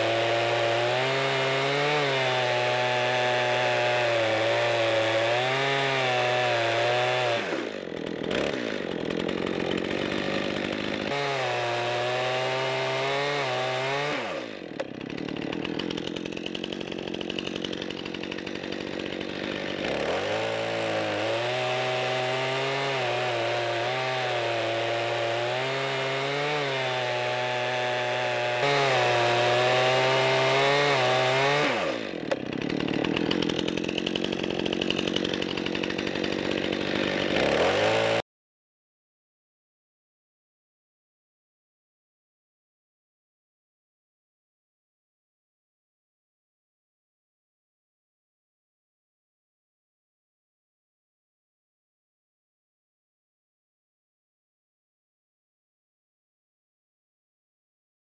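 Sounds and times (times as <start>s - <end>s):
chainsaw cutting log: 0.0s - 38.2s.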